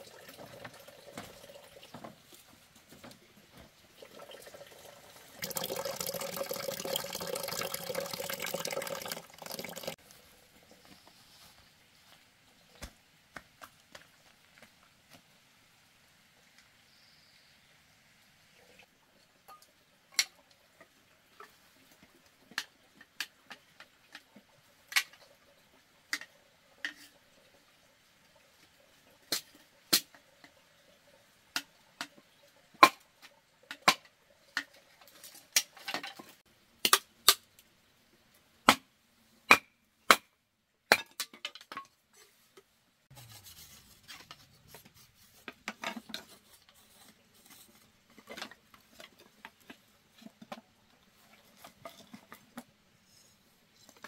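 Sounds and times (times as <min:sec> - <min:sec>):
rustling and scraping: 0:42.1 - 0:54.0.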